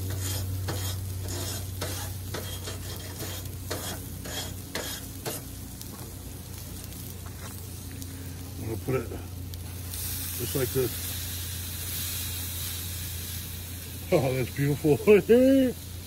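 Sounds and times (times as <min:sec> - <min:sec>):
metal tongs scraping grill grates: 0:00.0 - 0:05.6, 0:09.6 - 0:13.4
steady low hum: 0:00.0 - 0:16.0
steaks sizzling on grill: 0:00.0 - 0:16.0.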